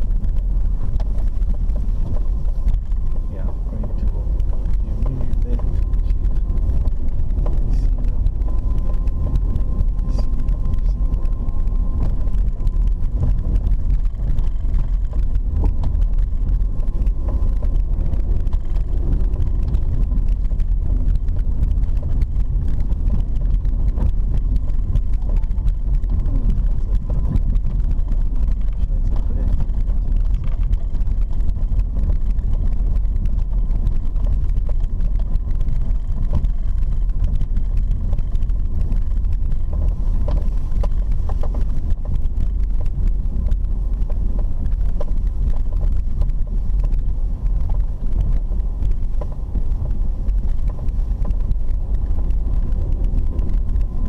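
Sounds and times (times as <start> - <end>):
car tyres and engine rumbling: 0.0 - 54.0.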